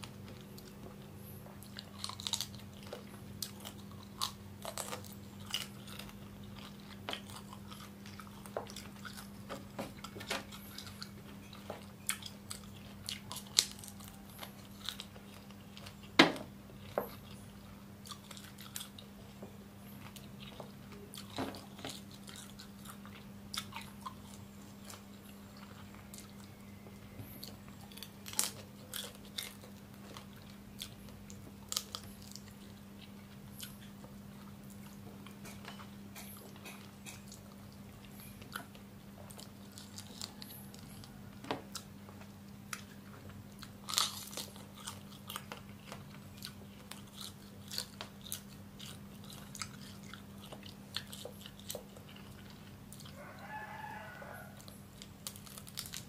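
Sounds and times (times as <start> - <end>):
crunching and chewing: 0.0 - 56.0
steady low hum: 0.0 - 56.0.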